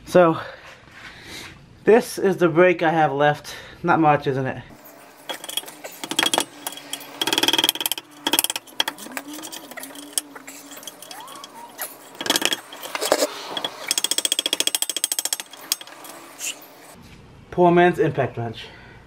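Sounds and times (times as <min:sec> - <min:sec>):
ratchet wrench clicking: 0:05.3 - 0:16.6
metal knocks: 0:05.3 - 0:17.0.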